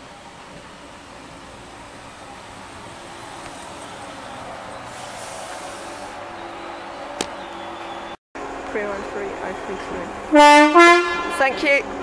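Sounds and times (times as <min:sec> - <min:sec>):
air hiss: 0:04.9 - 0:06.2.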